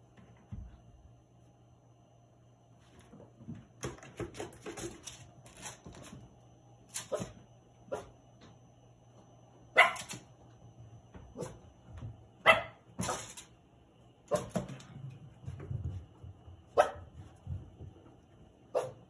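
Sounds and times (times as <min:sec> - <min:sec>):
dogs barking: 0:09.8 - 0:10.2, 0:12.4 - 0:13.2, 0:16.8 - 0:17.0, 0:18.7 - 0:19.0.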